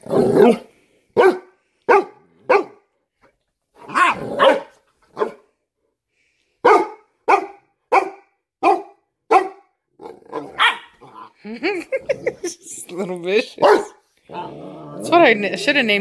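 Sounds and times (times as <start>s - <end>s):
puppy barking: 1.2s - 2.8s, 3.8s - 5.4s, 6.6s - 9.7s, 10.3s - 11.3s, 13.6s - 14.0s.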